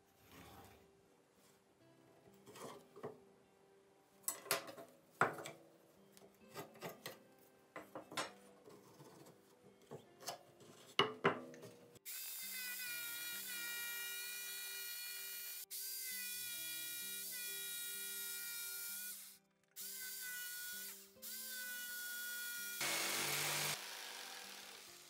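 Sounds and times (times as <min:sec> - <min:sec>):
jigsaw cutting wood: 0:22.8 - 0:25.0.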